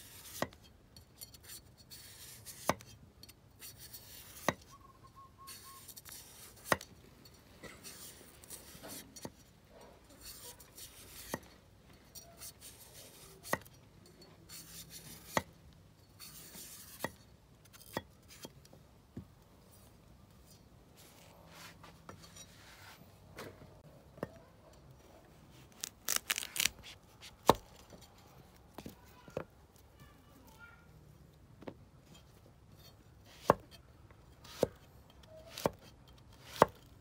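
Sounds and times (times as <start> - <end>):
blade scraping carrot: 0.0 - 0.6, 1.3 - 3.0, 3.6 - 4.8, 5.4 - 6.9, 7.6 - 11.6, 12.2 - 13.7, 14.5 - 15.5, 16.2 - 18.5, 34.4 - 36.9.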